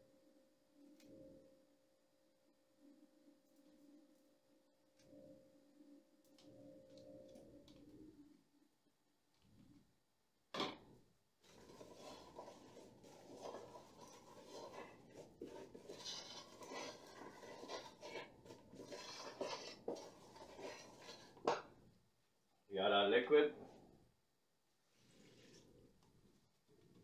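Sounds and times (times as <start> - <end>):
hand stirring flour in bowl: 11.4 - 21.8.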